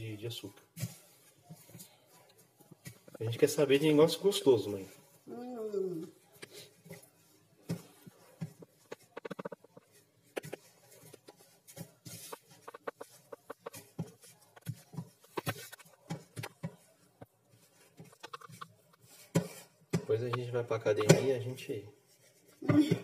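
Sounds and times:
hands kneading dough squelches: 0:00.0 - 0:23.0
pats and taps against bowl: 0:12.2 - 0:16.9.

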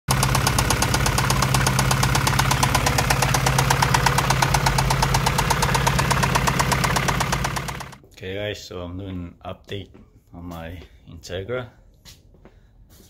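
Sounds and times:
car engine idling with knock: 0:00.1 - 0:08.0.

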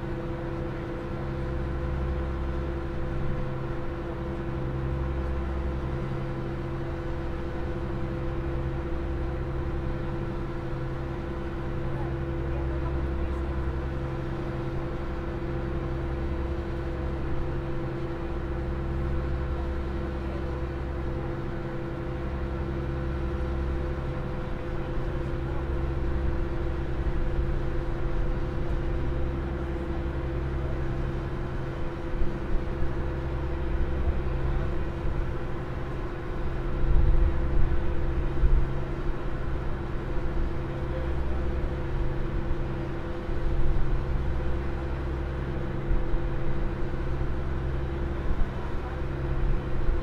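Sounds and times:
ferry engines droning: 0:00.0 - 0:50.0.

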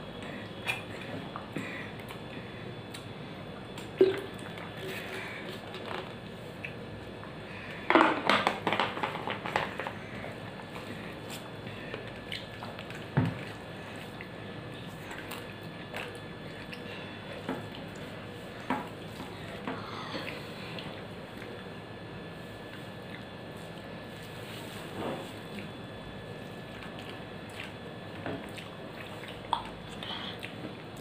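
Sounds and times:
chewing: 0:10.7 - 0:17.0, 0:26.6 - 0:31.0.

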